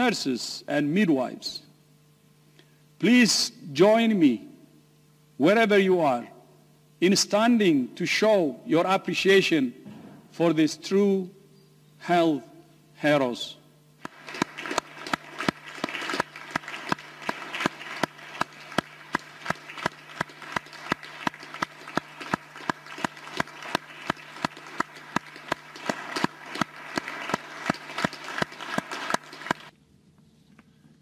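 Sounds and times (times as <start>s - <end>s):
scattered applause: 14.0s - 29.7s
sharp steady claps: 14.0s - 29.7s.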